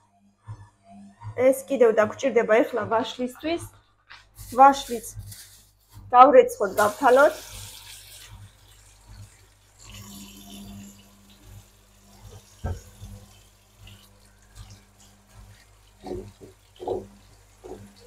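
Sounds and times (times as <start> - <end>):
tap running into steel sink: 12.3 - 13.1.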